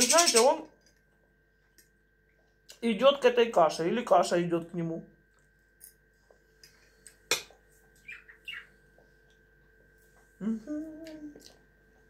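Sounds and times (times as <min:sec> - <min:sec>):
budgerigar chirps: 0:08.0 - 0:08.7.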